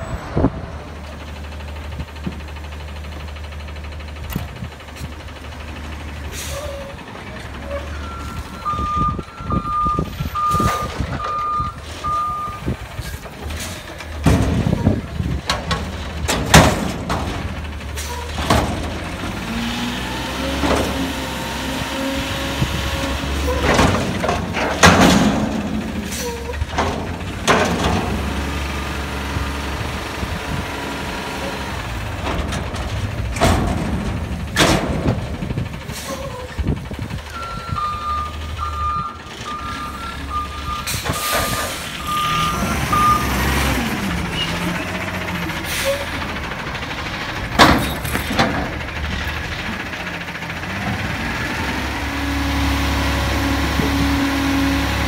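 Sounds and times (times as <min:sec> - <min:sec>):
truck engine idling and revving: 0:00.0 - 0:55.0
reversing beeps: 0:07.7 - 0:12.7, 0:37.3 - 0:43.3
loud bangs of steel dumpster: 0:14.2 - 0:17.7, 0:23.2 - 0:28.4, 0:31.9 - 0:35.7.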